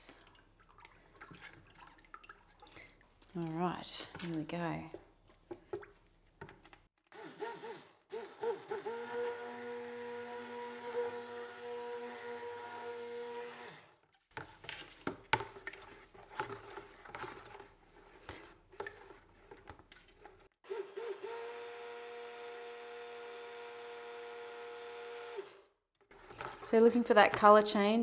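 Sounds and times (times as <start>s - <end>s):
stick blender motor hum: 7.1s - 14.0s.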